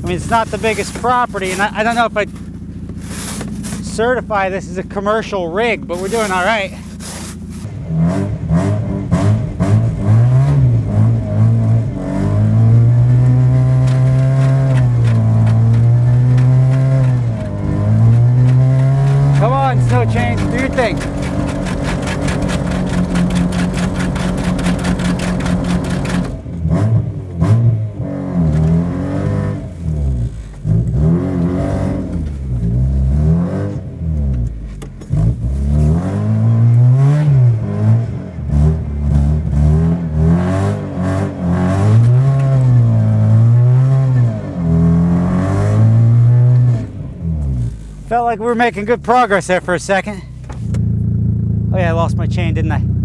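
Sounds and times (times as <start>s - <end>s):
wheels spinning in snow: 0.0s - 4.0s, 5.9s - 7.7s
car engine revving: 0.0s - 53.0s.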